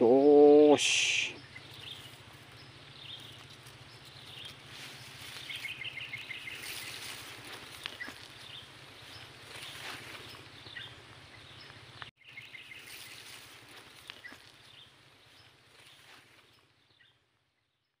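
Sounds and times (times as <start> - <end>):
steady outdoor hiss: 0.0 - 17.5.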